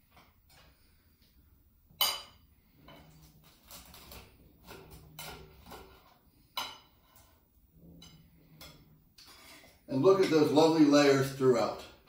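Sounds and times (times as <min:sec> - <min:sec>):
cutlery clinking on ceramic plate: 0:02.0 - 0:03.1
knife scraping through cake: 0:02.7 - 0:09.7.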